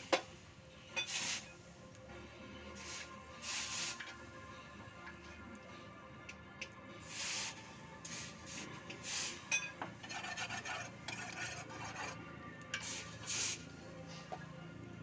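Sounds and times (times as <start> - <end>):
metal clink: 9.5 - 9.9.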